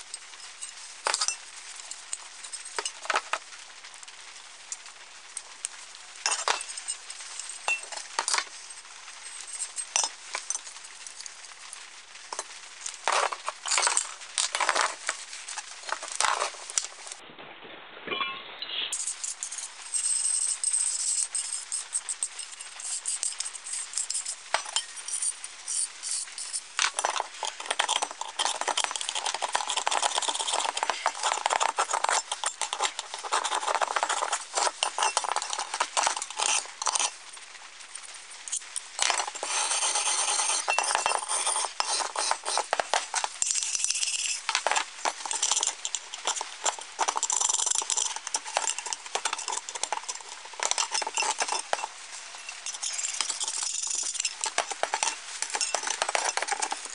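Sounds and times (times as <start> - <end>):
metal clinks: 19.0 - 37.2, 38.5 - 56.9
scraping rusty metal: 24.3 - 37.2, 38.6 - 56.9.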